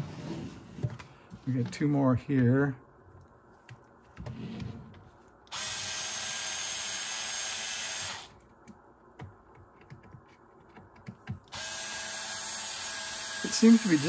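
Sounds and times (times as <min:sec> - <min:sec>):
cordless electric screwdriver running: 0:05.5 - 0:08.3, 0:11.5 - 0:14.0.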